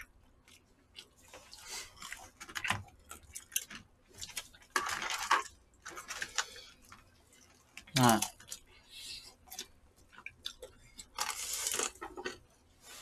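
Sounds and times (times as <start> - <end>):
person chewing: 0.0 - 4.8, 6.2 - 12.5
noisy rustling or slurping: 10.8 - 13.0.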